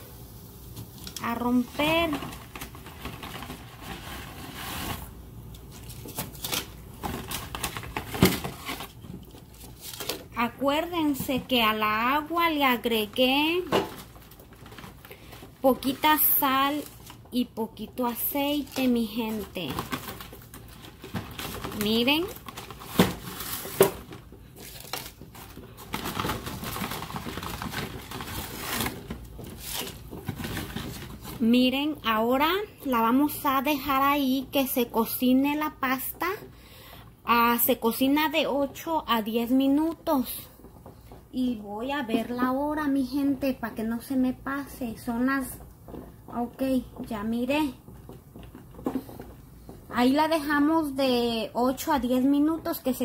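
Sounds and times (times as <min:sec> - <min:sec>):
boiling pot hissing: 0:00.0 - 0:02.8
water boiling in a pot: 0:00.0 - 0:05.8, 0:33.0 - 0:53.0.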